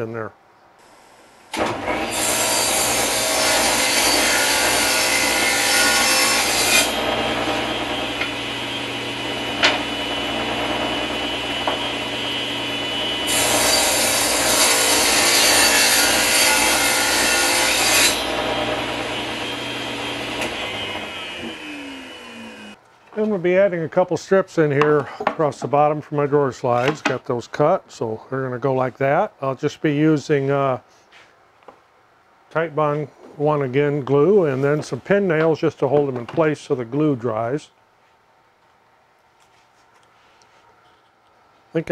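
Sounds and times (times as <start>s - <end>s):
saw blade cutting wood: 1.5s - 22.8s
table saw running: 1.5s - 22.8s
saw winding down: 4.6s - 22.8s.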